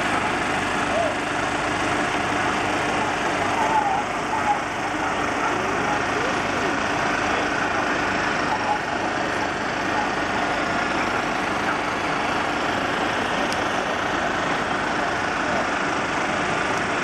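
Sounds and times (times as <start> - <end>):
diesel engine running steadily: 0.0 - 17.0.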